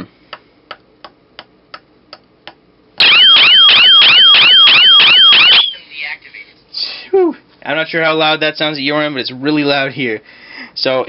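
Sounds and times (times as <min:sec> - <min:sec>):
electronic alarm siren warbling: 0:03.0 - 0:05.8.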